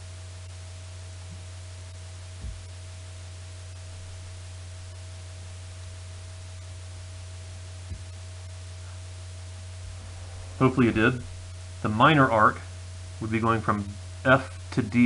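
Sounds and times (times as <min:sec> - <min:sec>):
low electrical hum: 0:00.0 - 0:15.0
soft low thumps: 0:01.2 - 0:05.7, 0:07.5 - 0:13.2
thin high steady tone: 0:09.2 - 0:13.4.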